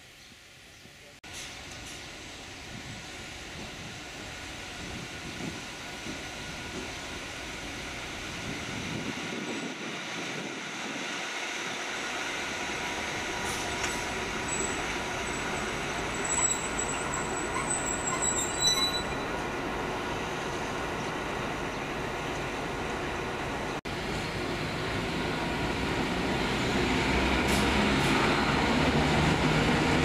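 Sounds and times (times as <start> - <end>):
diesel locomotive engine whine: 0.4 - 30.0
high thin wheel squeals: 14.4 - 19.4.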